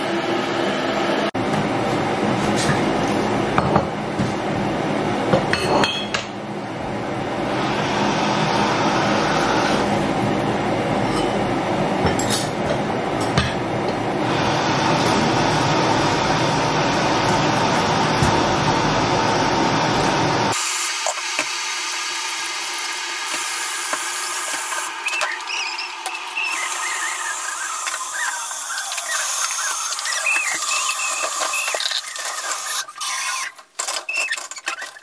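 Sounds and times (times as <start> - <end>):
tap water running: 20.6 - 33.5
short high squeaks: 25.0 - 35.0.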